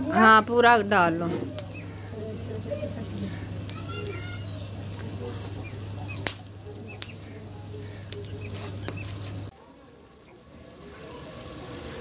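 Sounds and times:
low steady hum: 0:00.0 - 0:12.0
wood fire crackling and popping: 0:00.1 - 0:09.5.

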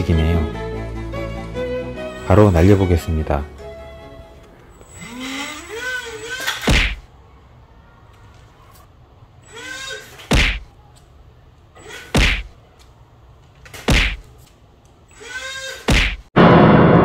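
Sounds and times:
tiny propeller motors whining: 0:04.8 - 0:06.7.

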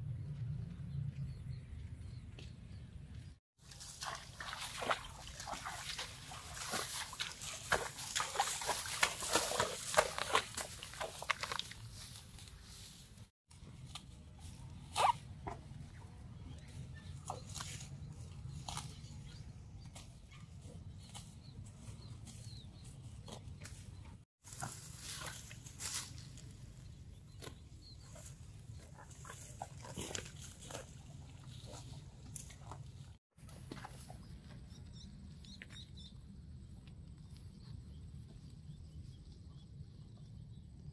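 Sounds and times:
cow tearing and chewing grass: 0:03.6 - 0:35.0.

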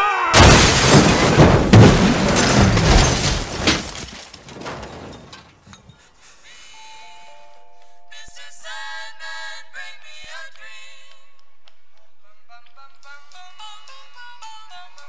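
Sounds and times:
banging and scraping impacts: 0:00.4 - 0:05.9
vehicle crashing: 0:00.4 - 0:05.9.

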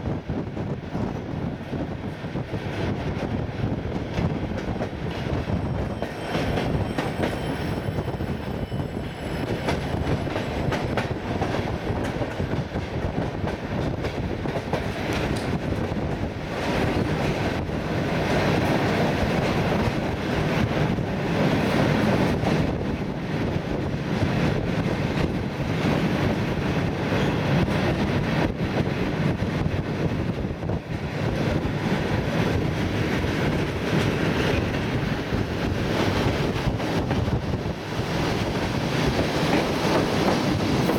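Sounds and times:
train wheels rumbling on track: 0:00.0 - 0:40.9
clacks over rail joints: 0:03.0 - 0:07.5, 0:09.4 - 0:22.7.

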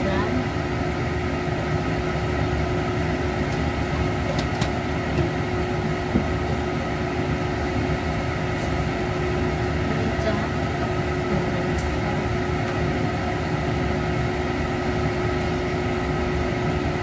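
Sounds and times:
kitchen hum with hiss: 0:00.0 - 0:17.0.

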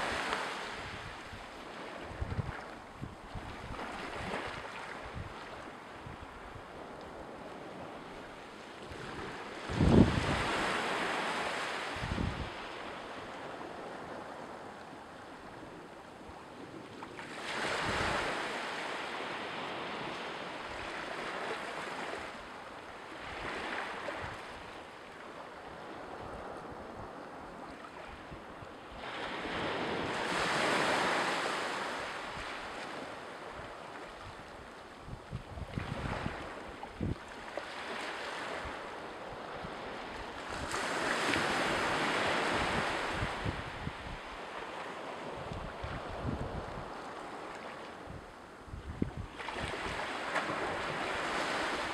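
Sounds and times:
sea waves washing ashore: 0:00.0 - 0:51.9
wind buffeting microphone: 0:02.1 - 0:05.4, 0:09.0 - 0:10.7, 0:12.0 - 0:12.6, 0:35.0 - 0:37.2, 0:39.4 - 0:44.4, 0:45.4 - 0:47.1, 0:48.0 - 0:51.8.

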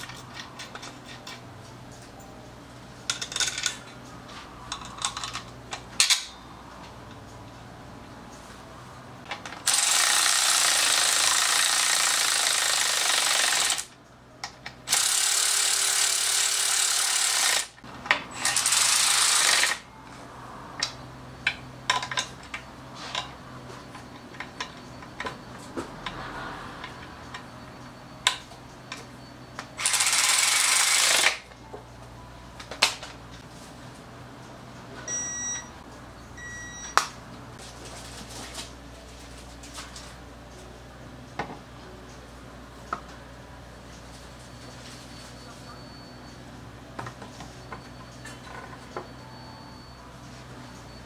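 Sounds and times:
power ratchet running: 0:09.6 - 0:13.9, 0:14.9 - 0:17.8, 0:18.4 - 0:19.8, 0:29.8 - 0:31.4.

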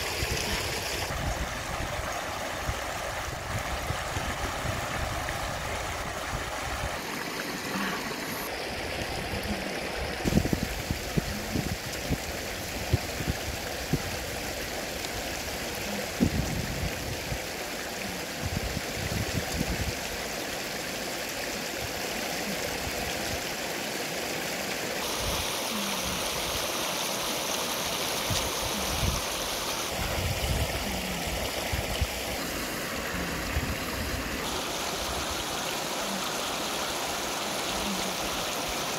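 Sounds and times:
river rushing over rocks: 0:00.0 - 0:16.3, 0:19.6 - 0:38.9.

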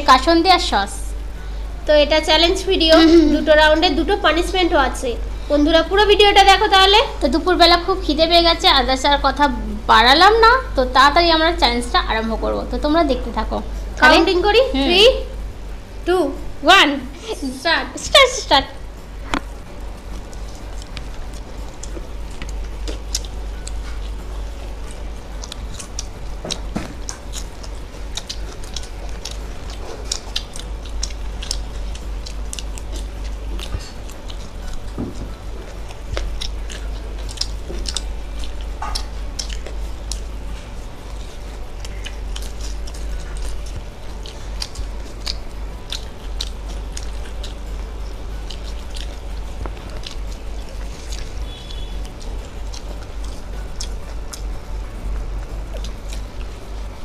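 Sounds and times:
steady low hum: 0:00.0 - 0:57.0
people chewing crunchy food: 0:18.8 - 0:57.0.

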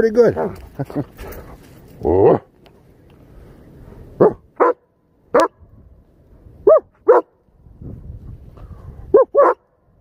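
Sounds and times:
dog barking: 0:04.2 - 0:05.6, 0:06.6 - 0:07.4, 0:09.1 - 0:09.7.

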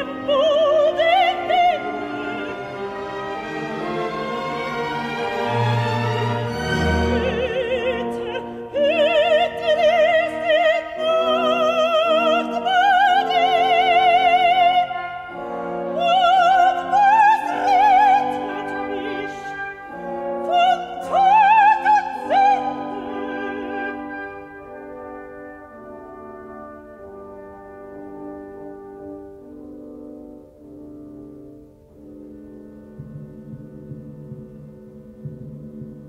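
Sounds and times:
operatic soprano singing: 0:00.0 - 0:26.5
symphony orchestra chords: 0:00.0 - 0:36.0.

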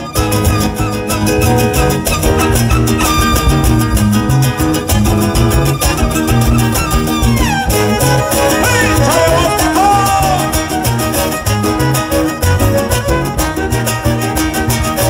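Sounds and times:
guitars strumming: 0:00.0 - 0:15.0
violin melody: 0:00.0 - 0:15.0.

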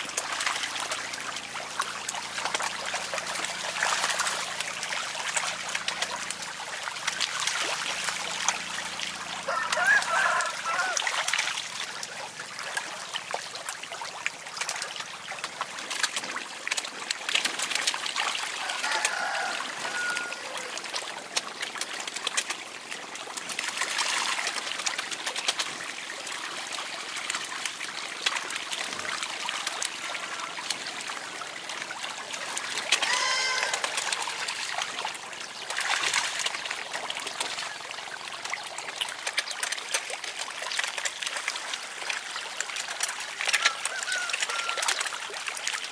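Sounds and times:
fish splashing in water: 0:00.0 - 0:45.9
bird call: 0:33.0 - 0:34.6, 0:43.6 - 0:45.0.

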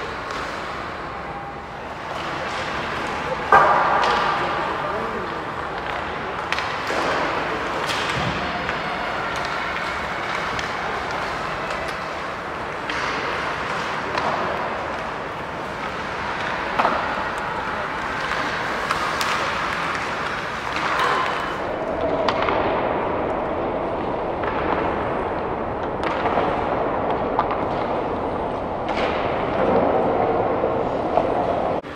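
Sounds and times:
skate blades scraping ice: 0:00.0 - 0:21.7
pucks cracking off sticks: 0:00.0 - 0:22.9, 0:25.8 - 0:28.0.

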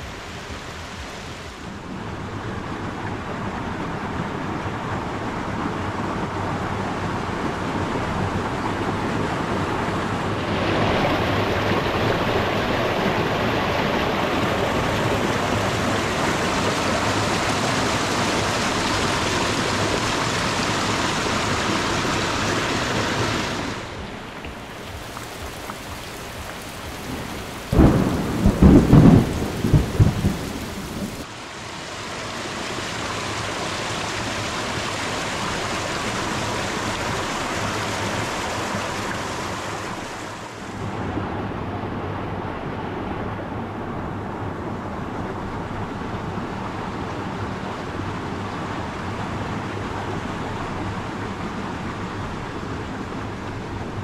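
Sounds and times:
rain falling on a lake: 0:00.0 - 0:54.0
water rushing over a weir: 0:00.0 - 0:54.0
stream running over pebbles: 0:10.3 - 0:40.7
thunder: 0:27.0 - 0:31.2.

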